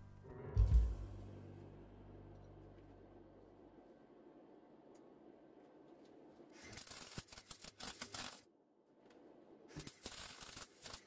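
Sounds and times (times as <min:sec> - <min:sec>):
welder arc crackling: 0:06.6 - 0:08.5, 0:09.7 - 0:11.0.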